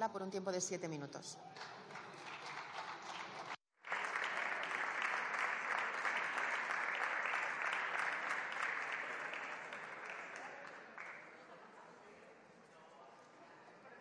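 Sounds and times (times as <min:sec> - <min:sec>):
crowd applauding: 0:01.6 - 0:11.4.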